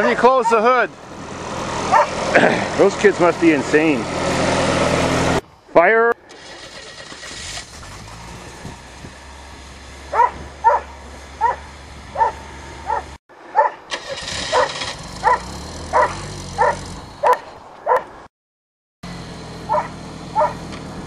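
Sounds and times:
small engine running: 1.0s - 5.4s, 6.3s - 13.2s, 13.9s - 17.4s, 19.0s - 21.0s
dog barking: 1.9s - 2.2s, 10.1s - 13.8s, 14.5s - 18.1s, 19.7s - 20.6s.

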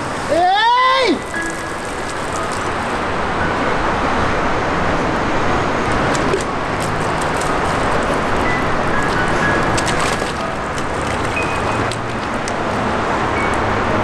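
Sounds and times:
water running from outdoor tap: 0.1s - 3.1s, 5.9s - 13.3s
water splashing on balloons: 0.9s - 3.0s, 5.9s - 13.1s.

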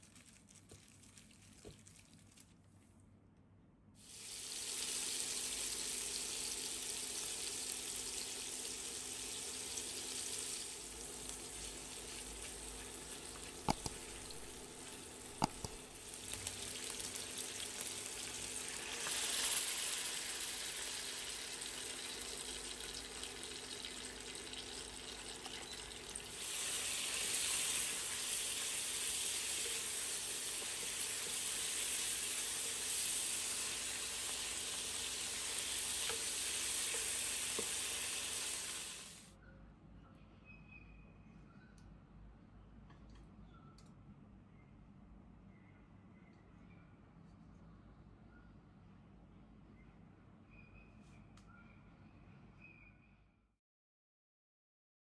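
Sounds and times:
water poured into hot pan: 4.0s - 14.6s, 15.3s - 39.2s
meat sizzling in a wok: 4.0s - 39.3s
wooden spatula stirring: 11.5s - 15.9s.

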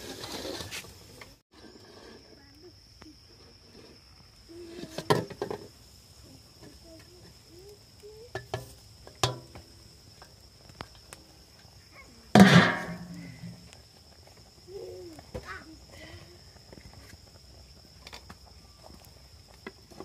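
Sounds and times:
metal tray clinking and knocking: 12.4s - 13.1s.

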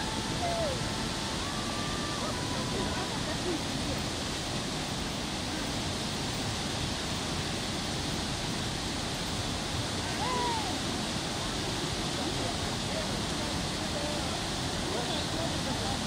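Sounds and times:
river rushing over waterfall: 0.0s - 16.0s.

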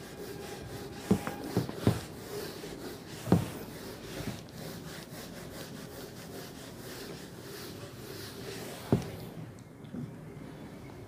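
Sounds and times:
whiteboard being wiped: 0.0s - 9.3s
knocks on whiteboard: 1.0s - 2.1s.

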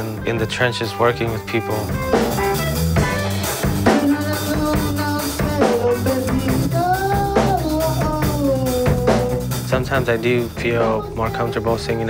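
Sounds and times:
electric guitar: 0.0s - 11.2s
drum kit beat: 0.0s - 12.0s
man singing into a microphone: 3.9s - 12.0s.

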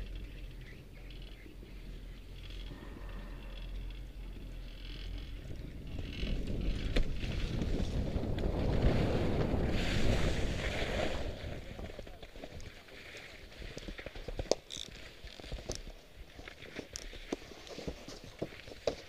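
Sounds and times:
wind on microphone: 1.5s - 12.0s
skis scraping over snow: 4.9s - 19.0s.

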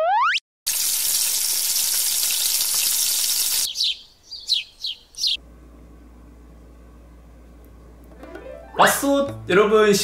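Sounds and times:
deep-frying sizzle: 0.7s - 3.7s.

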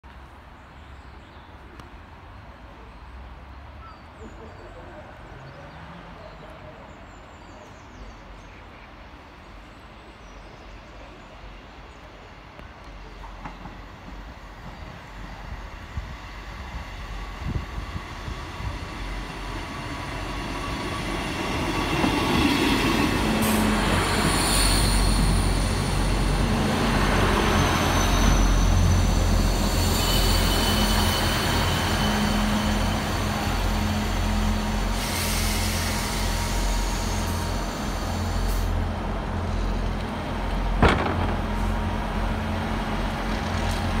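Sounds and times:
diesel train engines rumbling: 1.5s - 44.0s
high brake squeal: 23.4s - 25.9s, 27.4s - 33.2s, 34.1s - 38.8s.

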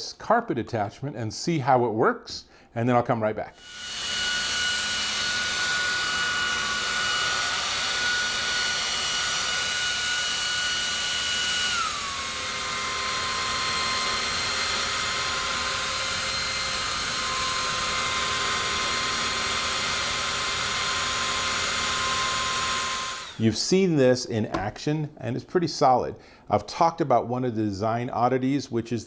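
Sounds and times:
vacuum motor whine: 3.6s - 23.4s.

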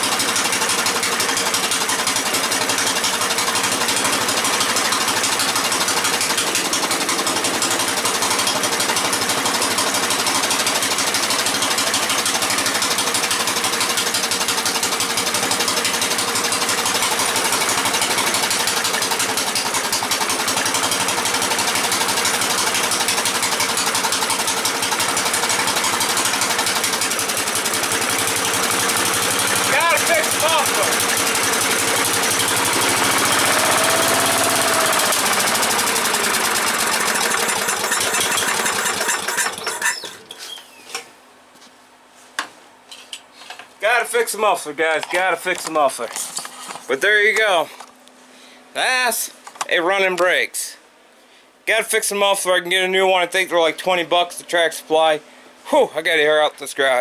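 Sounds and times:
single-cylinder engine running: 0.0s - 40.3s.

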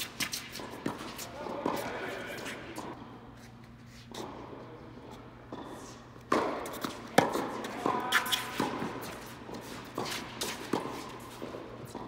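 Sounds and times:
tennis balls struck by racquets: 0.0s - 3.0s, 5.5s - 12.0s
feet shuffling on hard court: 0.0s - 4.4s, 6.6s - 12.0s.

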